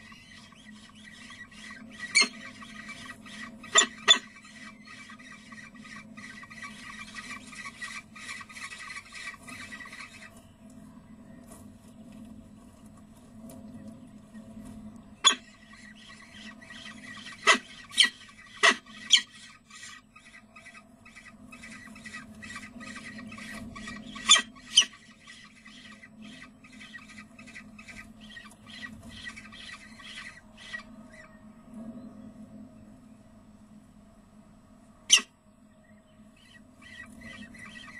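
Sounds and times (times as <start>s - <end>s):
falcon chicks begging cheeps: 0.0s - 10.3s, 16.8s - 20.4s
sharp bird calls: 0.0s - 10.4s, 15.2s - 31.4s, 35.1s - 35.4s, 36.2s - 37.9s
steady low hum: 0.0s - 37.9s.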